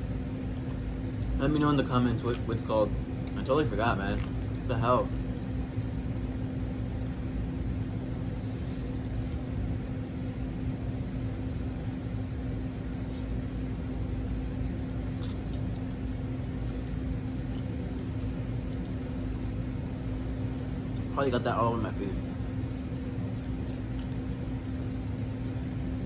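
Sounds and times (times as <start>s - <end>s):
steady low hum: 0.0s - 26.0s
chewing clicks: 4.0s - 6.1s.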